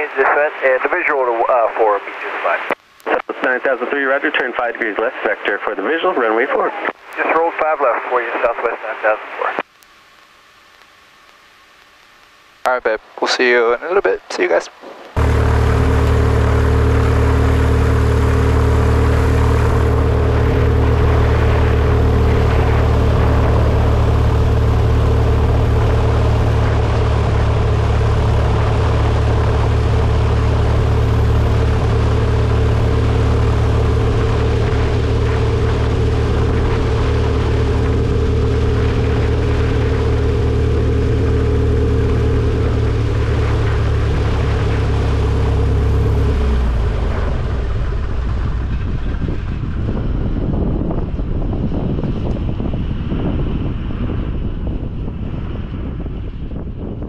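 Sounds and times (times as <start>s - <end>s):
propeller plane engine droning: 12.2s - 57.0s.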